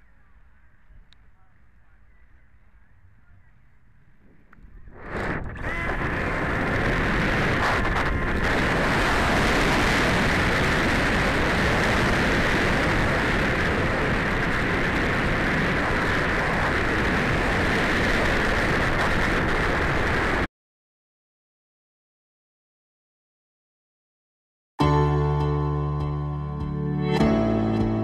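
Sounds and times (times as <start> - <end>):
wind noise: 0.0 - 20.5.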